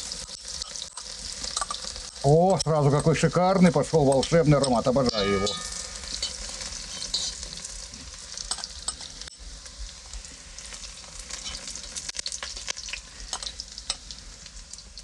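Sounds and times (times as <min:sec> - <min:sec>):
garlic sizzling in oil: 0:00.0 - 0:15.0
metal spoon scraping pot: 0:04.2 - 0:07.4, 0:11.4 - 0:11.7.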